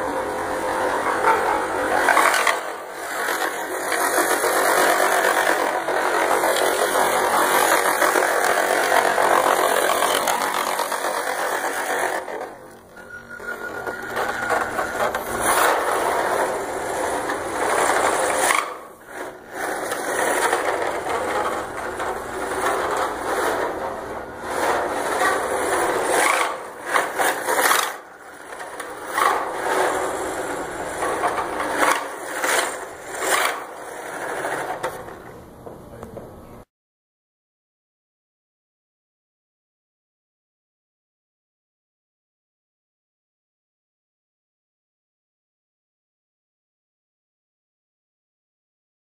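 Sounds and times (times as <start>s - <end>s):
rc truck motor and gears rattling: 0.6s - 35.3s.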